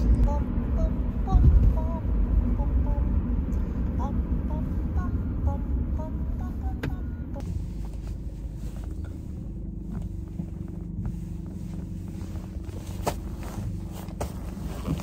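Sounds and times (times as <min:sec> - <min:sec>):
car cabin road rumble: 0:00.0 - 0:15.0.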